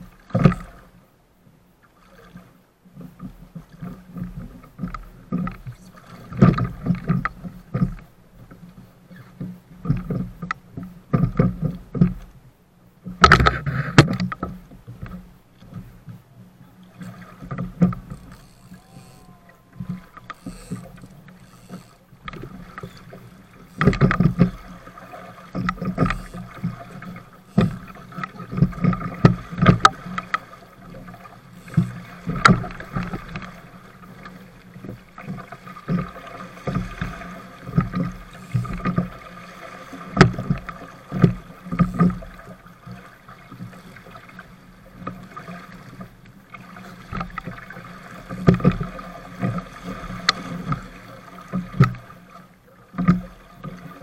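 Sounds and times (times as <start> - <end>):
water splashing against hull: 0.0 - 54.0
rushing water: 13.0 - 54.0.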